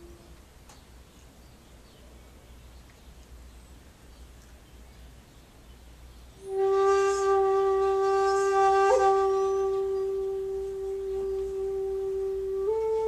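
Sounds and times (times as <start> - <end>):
bamboo flute long note: 0.0 - 0.4, 6.4 - 13.0.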